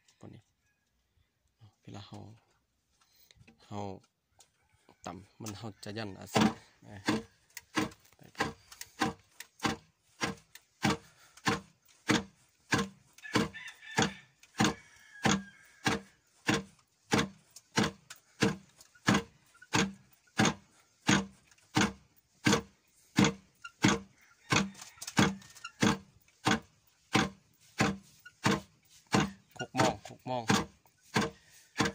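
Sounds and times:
wooden rice pounder thudding: 6.3s - 31.9s.

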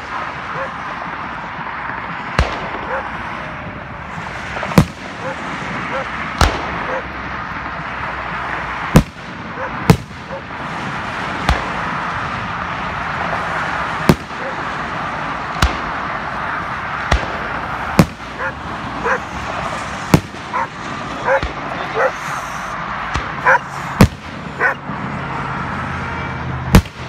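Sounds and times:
steady background noise: 0.0s - 27.0s
firework shells booming: 2.3s - 3.3s, 4.2s - 7.8s, 8.8s - 12.4s, 13.3s - 16.3s, 16.9s - 18.6s, 19.4s - 21.8s, 23.0s - 24.5s, 26.7s - 27.0s.

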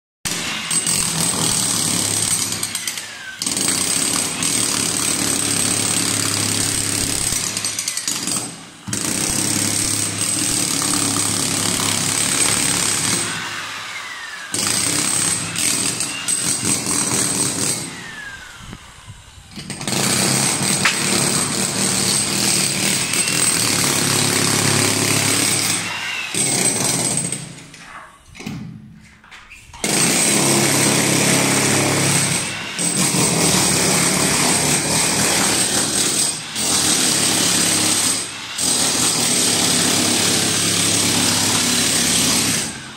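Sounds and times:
demolition hammer chipping tiles: 0.3s - 18.2s, 19.5s - 28.8s, 29.8s - 42.9s.

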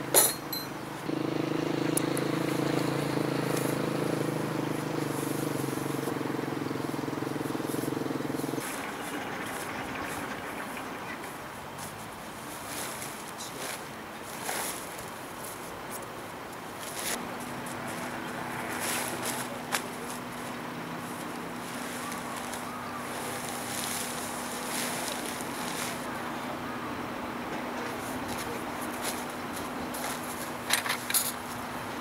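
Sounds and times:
vehicle engine running: 1.0s - 11.6s, 17.1s - 32.0s
tent fabric rustling: 11.5s - 26.3s, 28.0s - 30.7s.

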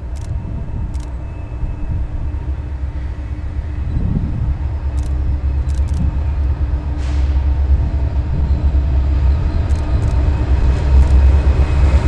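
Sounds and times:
constant hum: 0.0s - 12.0s
diesel locomotive rumble: 0.0s - 12.0s.

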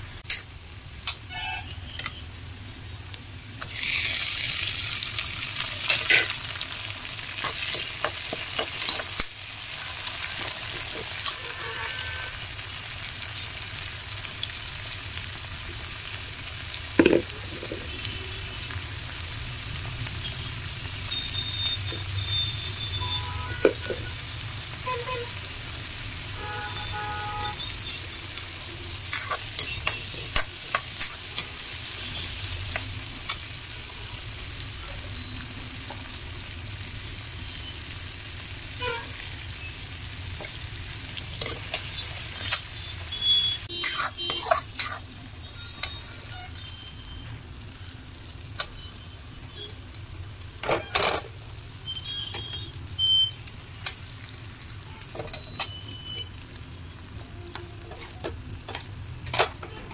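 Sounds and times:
vegetables sizzling in oil: 0.0s - 59.9s
steel spoon scraping pan: 10.4s - 12.4s, 29.1s - 31.6s, 43.8s - 45.1s.

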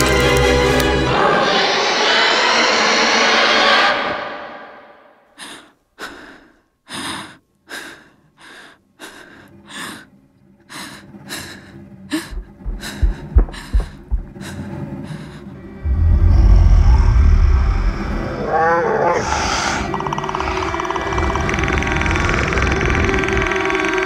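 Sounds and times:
boy breathing shakily and gasping: 10.7s - 15.6s
low dull thumps: 12.1s - 14.7s.

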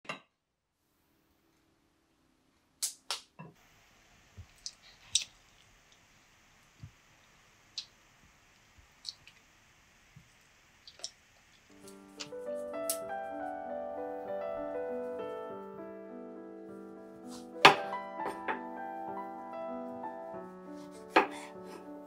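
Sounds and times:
faint hum: 3.6s - 17.2s.

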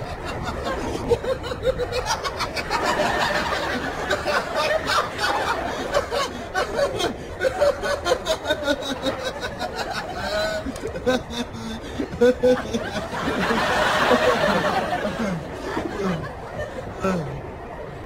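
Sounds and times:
man chuckling: 10.1s - 13.1s, 15.0s - 17.5s.

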